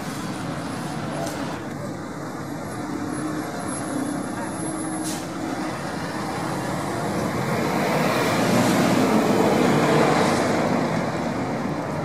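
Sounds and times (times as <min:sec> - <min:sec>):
passing vehicle rushing: 0:04.9 - 0:11.7.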